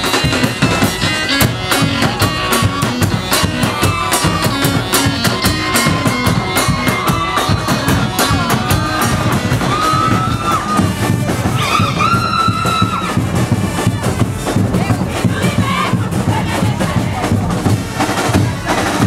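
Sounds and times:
sustained wind-instrument tones: 0.0s - 15.1s
drums beating fast rhythm: 0.0s - 19.0s.

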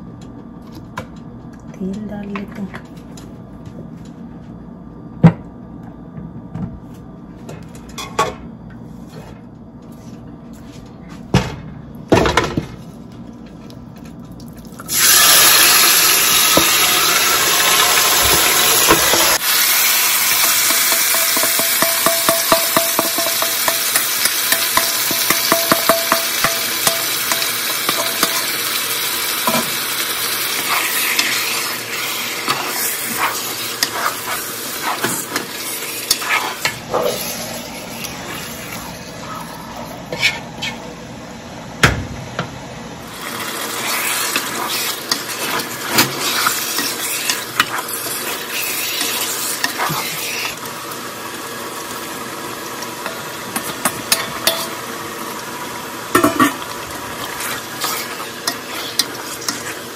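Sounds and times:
chicken sizzling in hot oil: 14.8s - 39.0s, 43.1s - 59.9s
pot and utensils knocking: 20.4s - 28.4s.

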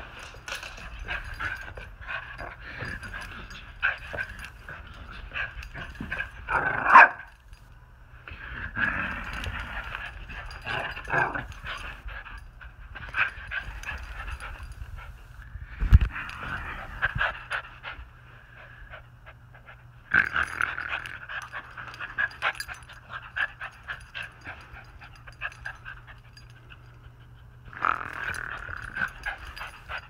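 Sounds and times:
small dog growling and barking: 1.0s - 7.3s, 8.5s - 12.0s, 20.1s - 21.3s, 27.7s - 30.0s.

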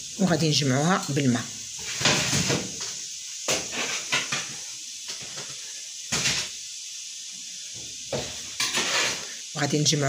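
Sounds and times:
hand scraping clay dish: 8.6s - 9.4s.

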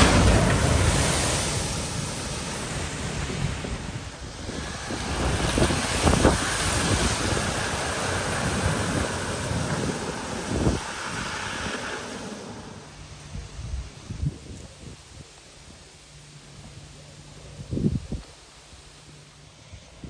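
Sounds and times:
vehicles splashing through water: 0.0s - 13.3s
water rushing across road: 0.0s - 13.5s.

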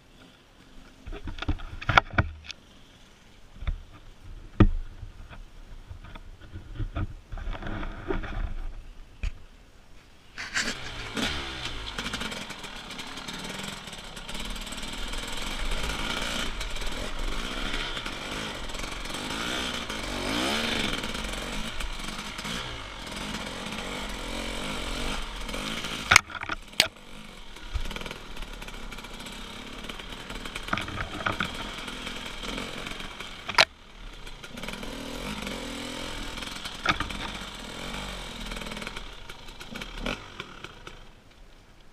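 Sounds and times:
motorcycle engine revving: 10.4s - 41.2s.

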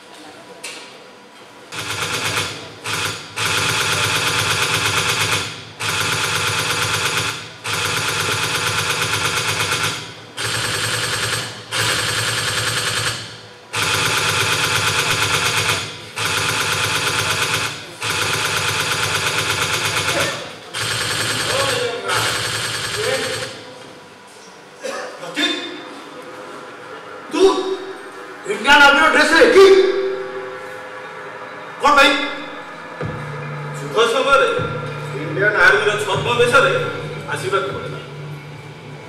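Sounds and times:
machine-gun fire: 1.7s - 23.7s.

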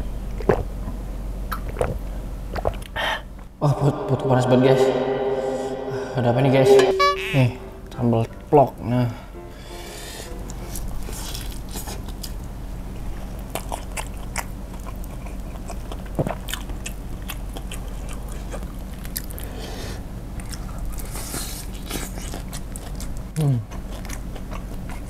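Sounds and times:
chewing crispy chicken crunches: 11.1s - 19.6s, 20.3s - 25.0s.

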